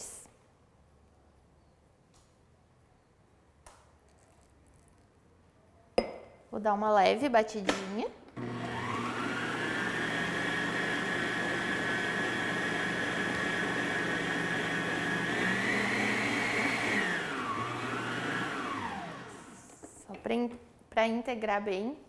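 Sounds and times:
stand mixer motor whine: 8.4 - 19.7.

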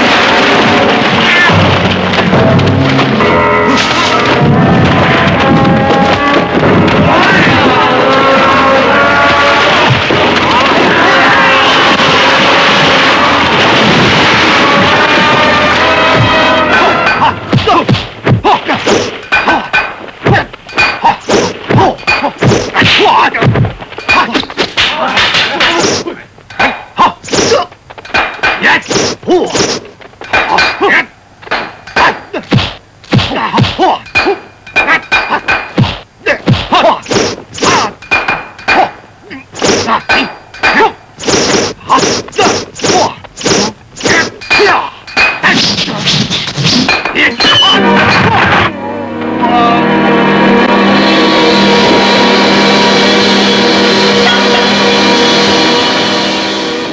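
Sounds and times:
fighters grunting: 16.2 - 27.8, 31.9 - 38.0, 38.7 - 47.4
punch whacks and thuds: 17.5 - 19.2, 21.2 - 23.8, 31.6 - 33.9, 35.6 - 37.9, 39.6 - 44.3
punch and block whacks: 17.5 - 30.8, 31.5 - 38.9, 39.5 - 47.2.

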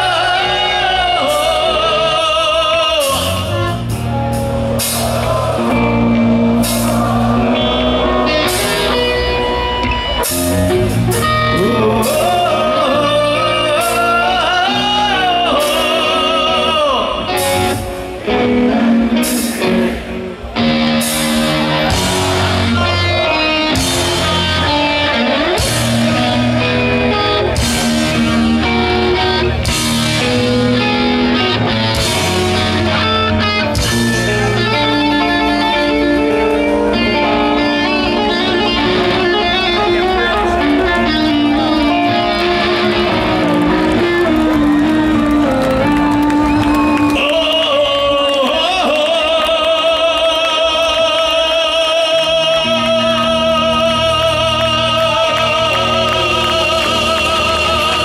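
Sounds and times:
heavy metal band playing live: 0.0 - 58.0
lead guitar fast runs: 19.7 - 48.2.

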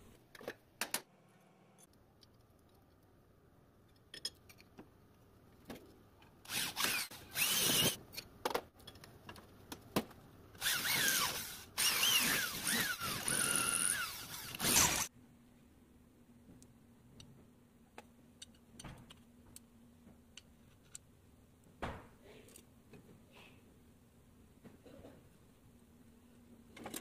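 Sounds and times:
electric drill whining into steel: 6.5 - 8.0, 10.6 - 15.1.

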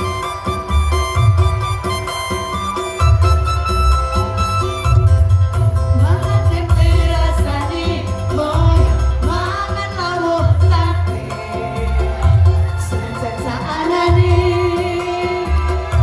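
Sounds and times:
electronic keyboard melody: 0.0 - 16.0
choir singing: 9.2 - 16.0.

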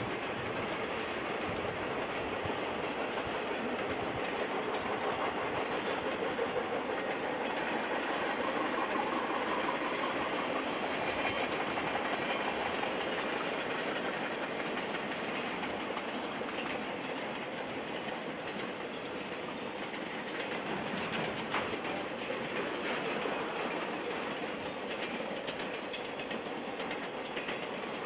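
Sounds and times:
freight train rolling on rails: 0.0 - 28.0.

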